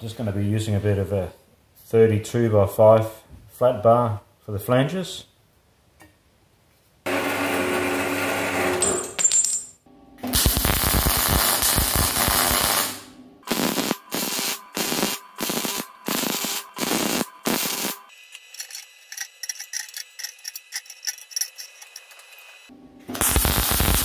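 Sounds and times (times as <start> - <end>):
crackling welding arc: 10.3 - 19.2, 21.8 - 24.0
short tack welds: 10.3 - 21.1, 21.8 - 24.0.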